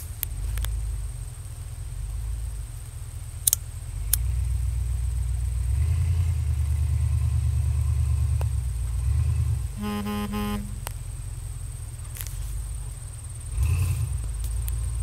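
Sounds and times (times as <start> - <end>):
vehicle engine low rumble: 0.0 - 15.0
sharp clicks: 3.4 - 4.3.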